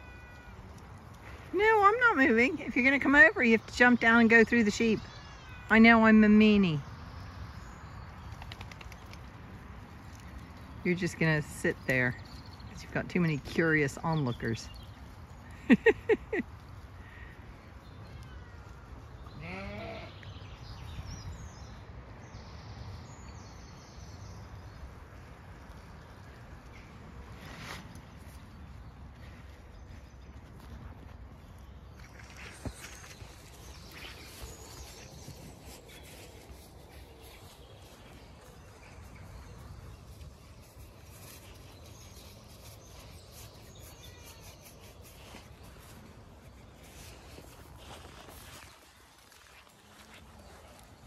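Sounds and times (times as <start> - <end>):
sheep bleating: 19.4 - 20.2
glove scratching wool: 40.3 - 51.0.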